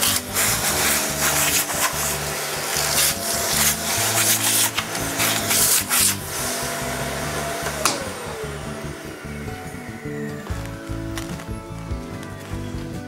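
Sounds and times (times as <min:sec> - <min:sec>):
hand tool scraping broken glass: 0:00.0 - 0:06.2.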